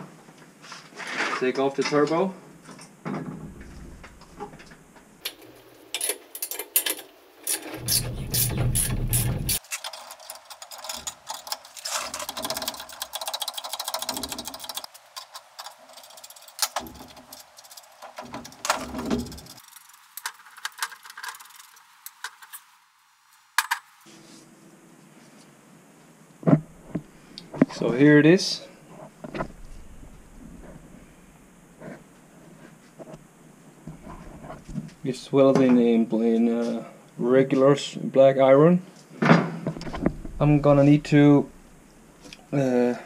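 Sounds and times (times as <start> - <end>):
hand ratchet clicking: 12.2 - 17.8
low rumble: 29.3 - 31.7, 39.8 - 42.2.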